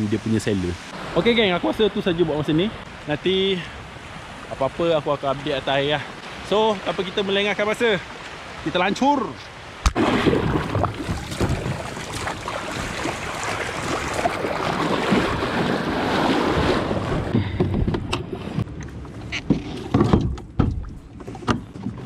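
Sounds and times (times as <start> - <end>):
small waves washing: 0.0 - 19.9
wind on microphone: 9.8 - 19.6.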